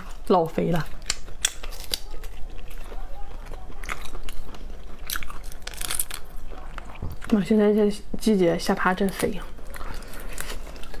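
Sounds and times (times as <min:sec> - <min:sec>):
wet chewing: 0:00.0 - 0:07.9, 0:08.8 - 0:11.0
shell crunching: 0:00.9 - 0:07.3.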